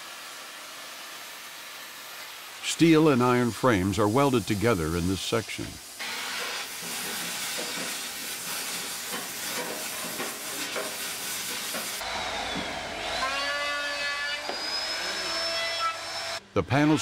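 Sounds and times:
gas welding torch hissing: 0:00.0 - 0:12.0
electric sander whining on wood: 0:12.0 - 0:16.4.

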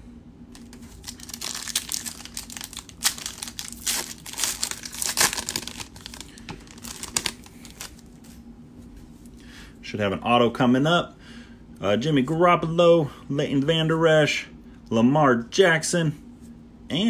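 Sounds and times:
foil wrapper crinkling: 0:00.5 - 0:08.2.

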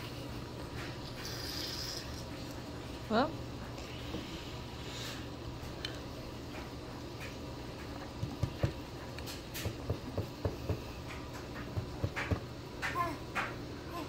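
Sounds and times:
hand patting a table: 0:08.2 - 0:08.8, 0:09.6 - 0:10.9, 0:11.6 - 0:13.6.

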